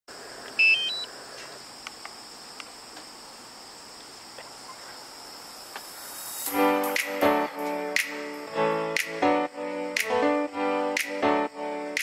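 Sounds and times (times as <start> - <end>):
crickets trilling: 0.1 - 12.0
remote controller beep: 0.6 - 1.1.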